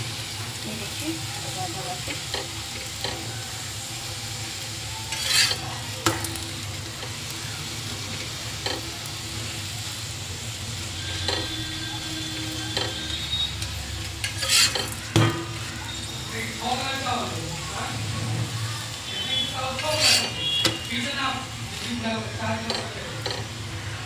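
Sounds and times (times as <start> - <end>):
flatbread sizzling in oil: 0.0 - 24.0
metal spatula knocking: 22.6 - 23.5.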